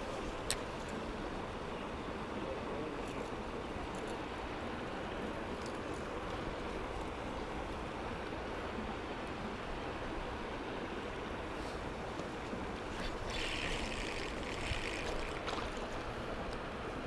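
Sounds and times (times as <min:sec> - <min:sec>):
stream rushing: 0:03.4 - 0:17.0.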